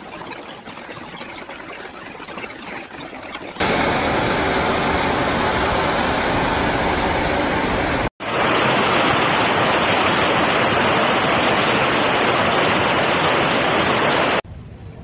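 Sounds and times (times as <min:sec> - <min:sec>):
strong wind: 0:03.6 - 0:15.0.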